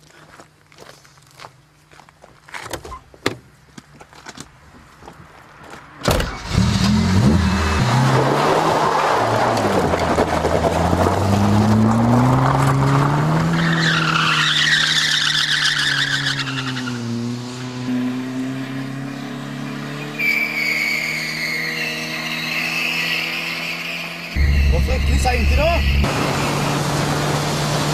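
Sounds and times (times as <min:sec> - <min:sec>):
car engine revving: 0:06.2 - 0:14.4, 0:17.0 - 0:27.9
tyres squealing: 0:13.5 - 0:17.0, 0:20.2 - 0:26.1.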